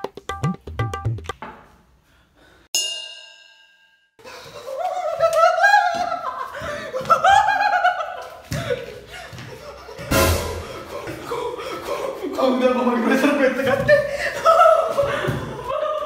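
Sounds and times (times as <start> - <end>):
man laughing loudly: 4.3 - 12.7, 13.3 - 16.0.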